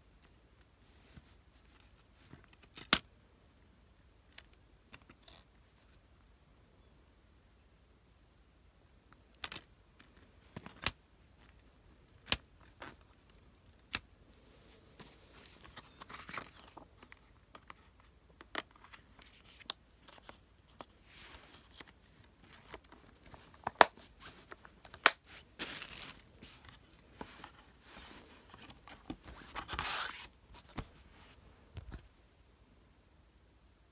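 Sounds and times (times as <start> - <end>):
plastic and cardboard rustling: 11.4 - 32.1
plastic case clicks and snaps: 23.6 - 24.0.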